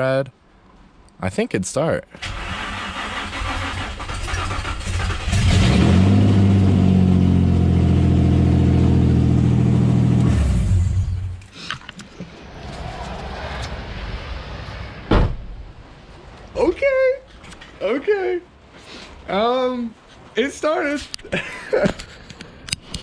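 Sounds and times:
car engine cranking and running: 0:02.2 - 0:11.5.

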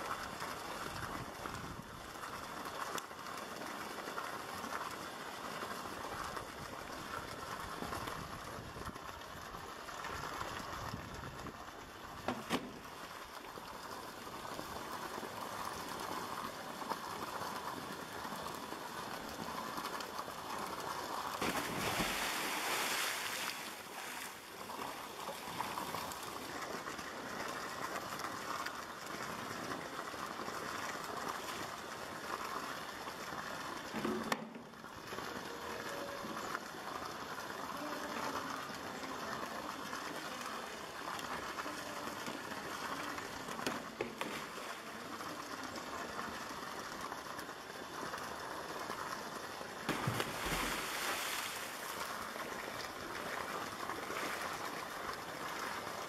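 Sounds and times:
water lapping and running: 0:00.0 - 0:56.0
animal splashing into water: 0:21.4 - 0:24.4, 0:49.9 - 0:52.0.

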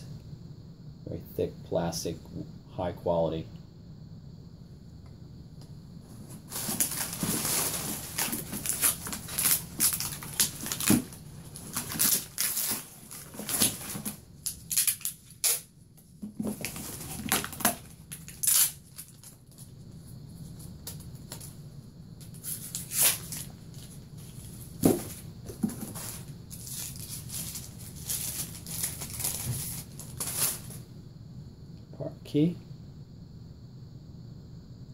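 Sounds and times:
packing material rustling in box: 0:06.1 - 0:19.7, 0:22.3 - 0:30.8.

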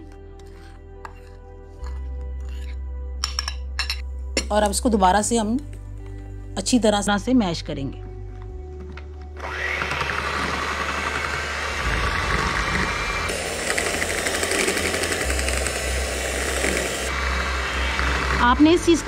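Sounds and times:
electric hand mixer whirring: 0:09.4 - 0:19.0.

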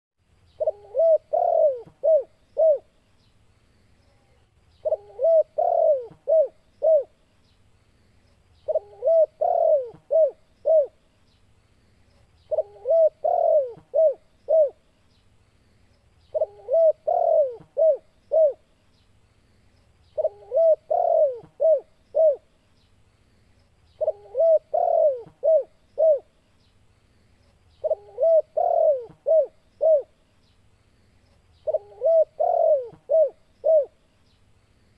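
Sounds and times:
dove cooing: 0:00.6 - 0:02.9, 0:04.8 - 0:07.2, 0:08.6 - 0:11.0, 0:12.5 - 0:14.8, 0:16.3 - 0:18.7, 0:20.2 - 0:22.5, 0:24.0 - 0:26.3, 0:27.8 - 0:30.2, 0:31.6 - 0:34.0.

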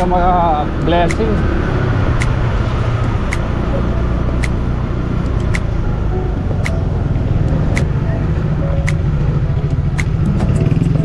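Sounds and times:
sharp ticking: 0:00.0 - 0:11.0
small motorcycle engine running: 0:09.7 - 0:11.0.

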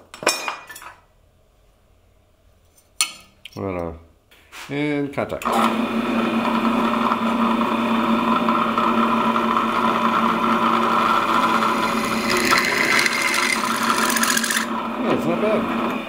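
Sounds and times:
drilling machine humming: 0:05.4 - 0:16.0
drill bit hissing through steel: 0:11.8 - 0:14.7.

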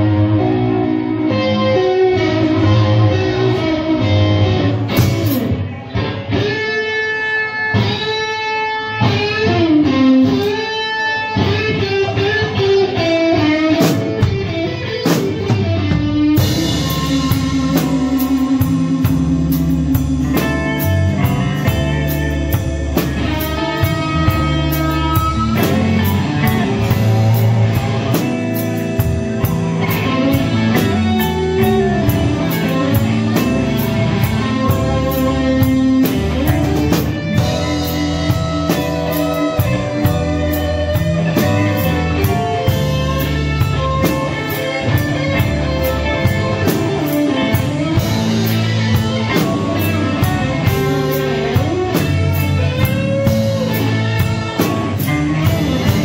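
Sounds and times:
bass: 0:00.0 - 0:56.0
electric guitar bending notes: 0:00.0 - 0:56.0
drum kit cymbals: 0:13.8 - 0:56.0.

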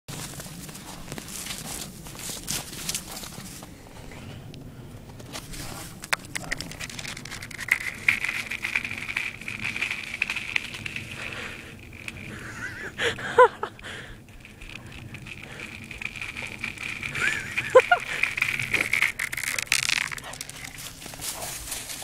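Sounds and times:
lake ice cracking: 0:05.9 - 0:22.0.

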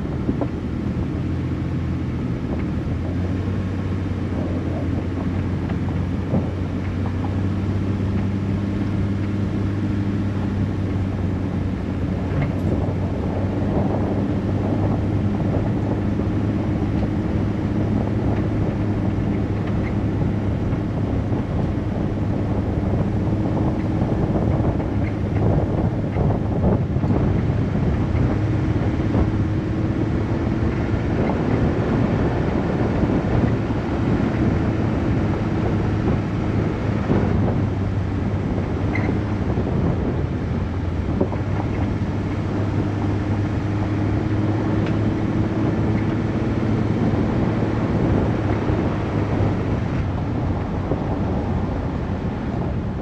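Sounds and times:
low engine hum: 0:00.0 - 0:53.0
tyre noise on dirt road: 0:00.0 - 0:53.0.

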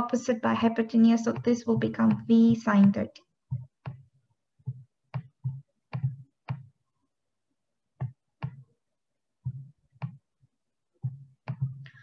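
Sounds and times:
stylus clicking on tablet: 0:00.9 - 0:06.8, 0:08.0 - 0:08.7, 0:09.4 - 0:10.3, 0:11.0 - 0:12.0.

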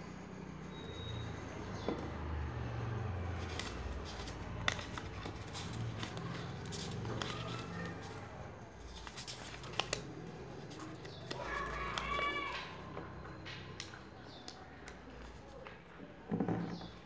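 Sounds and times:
paper crackles: 0:03.3 - 0:12.7
paper rustling and crinkling: 0:03.3 - 0:12.7.

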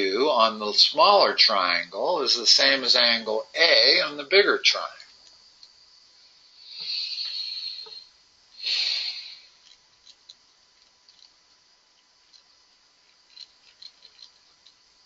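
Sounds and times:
faint irregular clicks: 0:05.0 - 0:05.8, 0:09.6 - 0:15.0.

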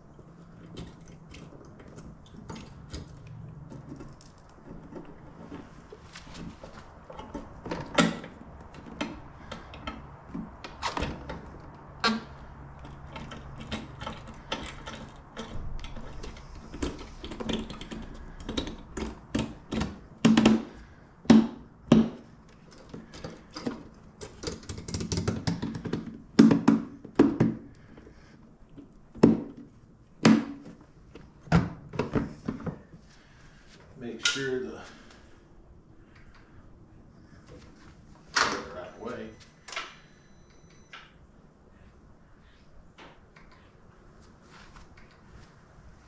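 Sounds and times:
motorcycle saddlebag clicks and knocks: 0:07.1 - 0:22.2, 0:22.8 - 0:27.7.

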